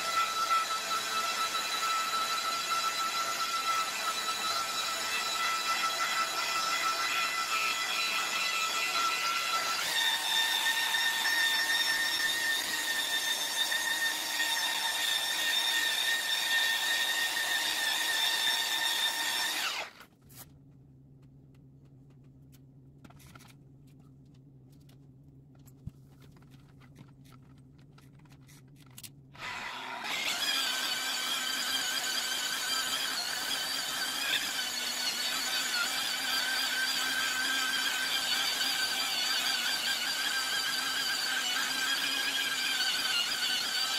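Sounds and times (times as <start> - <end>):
electric polisher whining: 19.4 - 19.9, 29.4 - 43.9.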